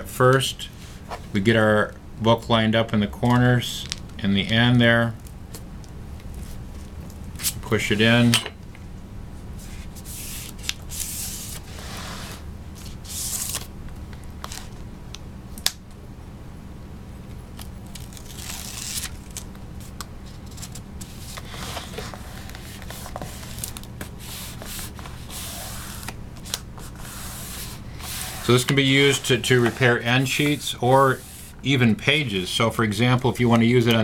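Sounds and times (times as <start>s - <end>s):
paper and cover rustling: 17.9s - 31.6s
fingers rubbing tape on book: 20.5s - 31.6s.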